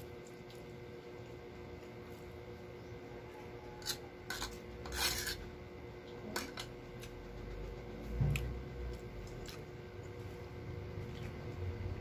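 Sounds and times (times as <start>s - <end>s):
fork scraping a food tray: 3.8s - 5.6s.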